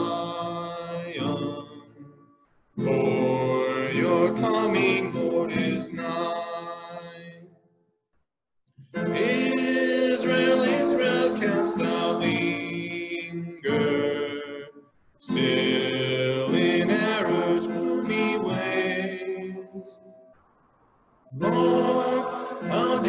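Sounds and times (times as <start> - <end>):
group singing a hymn: 2.9 - 7.2, 9.1 - 20.0, 21.4 - 23.0.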